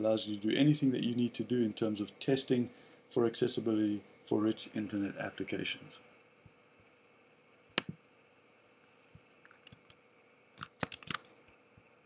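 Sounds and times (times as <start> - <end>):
keyboard key presses: 10.6 - 11.3.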